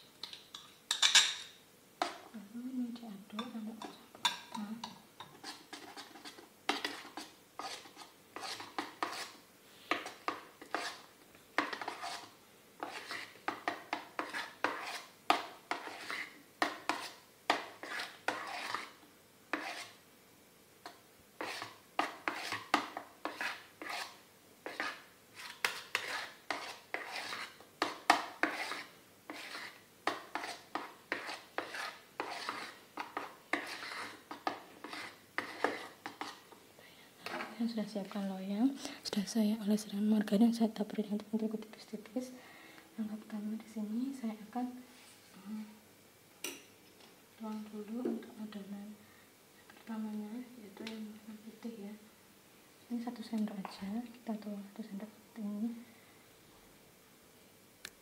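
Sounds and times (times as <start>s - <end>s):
metal spoon stirring batter in bowl: 0.2s - 2.4s, 3.3s - 20.0s, 20.8s - 36.6s, 37.2s - 38.3s.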